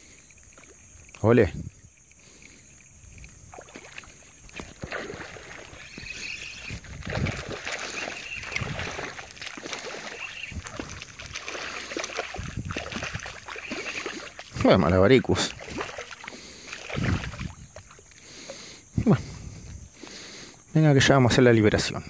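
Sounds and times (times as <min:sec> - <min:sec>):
fish splashing in water: 0:02.0 - 0:18.9.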